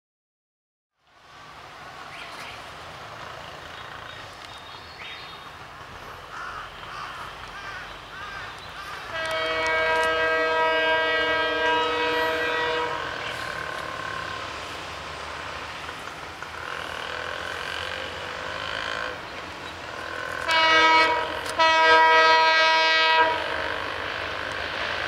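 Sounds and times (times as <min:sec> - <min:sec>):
locomotive engine rumble: 0:01.1 - 0:25.0
train air horn: 0:09.1 - 0:14.5, 0:20.0 - 0:23.9.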